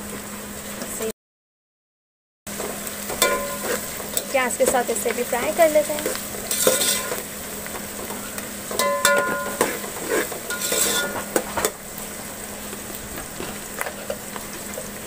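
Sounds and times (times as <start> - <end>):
onions sizzling in oil: 2.5 - 15.0
metal ladle scraping a pot: 3.2 - 4.2, 6.1 - 7.2, 8.7 - 11.8.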